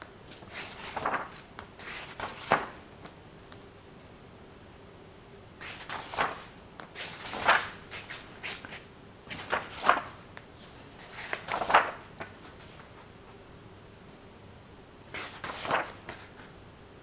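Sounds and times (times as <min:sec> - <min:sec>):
book pages turning: 0:00.2 - 0:02.8, 0:05.6 - 0:13.1, 0:15.2 - 0:16.5
page rustling: 0:00.2 - 0:02.8, 0:05.6 - 0:13.1, 0:15.1 - 0:16.5.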